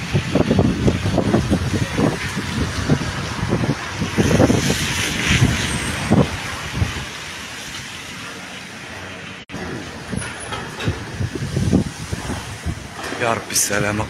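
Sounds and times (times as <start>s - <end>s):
wind rumbling on microphone: 0.0s - 8.9s, 9.5s - 14.0s
road traffic: 0.0s - 14.0s.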